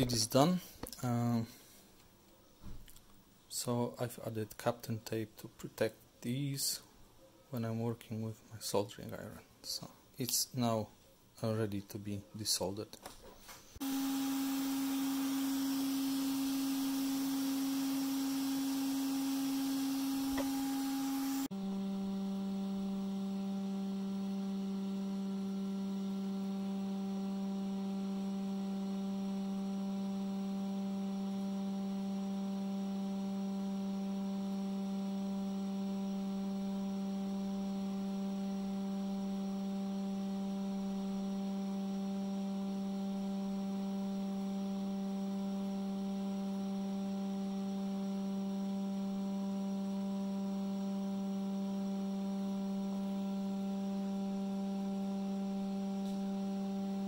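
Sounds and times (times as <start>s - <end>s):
hot air station hum: 13.8s - 32.1s.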